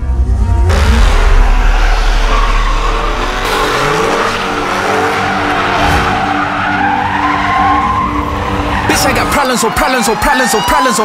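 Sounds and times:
car engine at high revs: 0:00.6 - 0:06.3
tires squealing on asphalt: 0:00.7 - 0:11.0.

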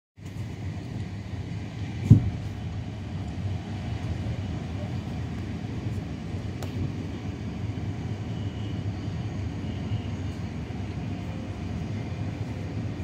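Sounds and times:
moving train rumbling: 0:00.2 - 0:13.0.

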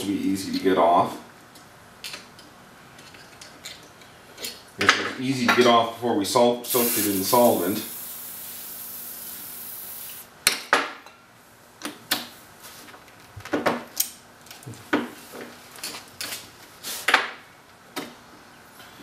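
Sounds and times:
aerosol spray hissing: 0:06.7 - 0:10.3.

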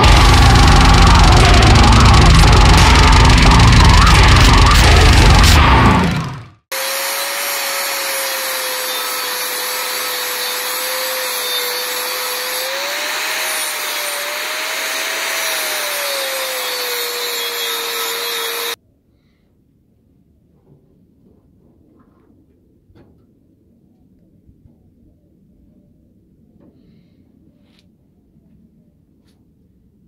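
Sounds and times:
angle grinder grinding metal: 0:00.0 - 0:18.8.

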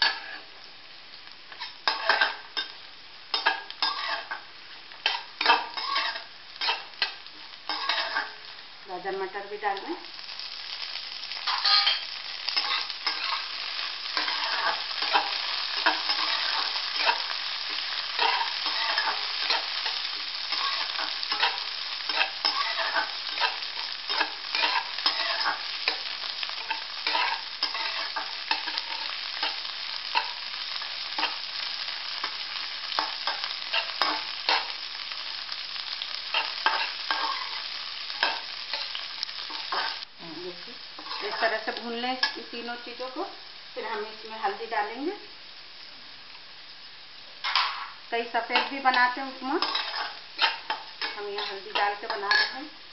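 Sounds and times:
metal spatula scraping pan: 0:00.0 - 0:00.4, 0:01.6 - 0:02.8, 0:03.4 - 0:04.4, 0:05.0 - 0:08.4, 0:11.5 - 0:13.5, 0:14.2 - 0:17.3, 0:18.2 - 0:26.0, 0:26.6 - 0:29.6, 0:41.0 - 0:41.5, 0:49.6 - 0:52.6
vegetables sizzling in oil: 0:00.0 - 0:52.9.

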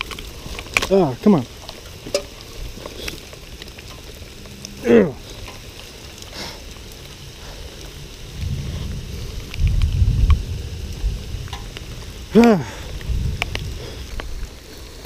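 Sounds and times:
low rumble: 0:00.0 - 0:14.8
heavy rain falling: 0:00.0 - 0:15.0
man exclaiming: 0:12.3 - 0:12.8.

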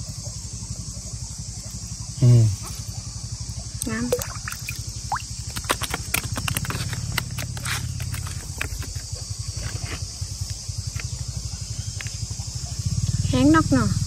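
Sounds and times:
insects buzzing: 0:00.0 - 0:14.0
small engine chugging: 0:00.0 - 0:14.0
splashes and knocks: 0:03.8 - 0:09.0.

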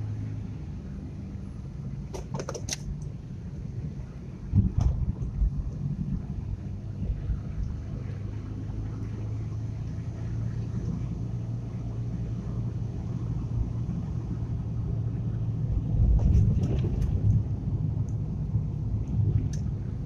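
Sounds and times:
car engine hum: 0:00.0 - 0:20.0.

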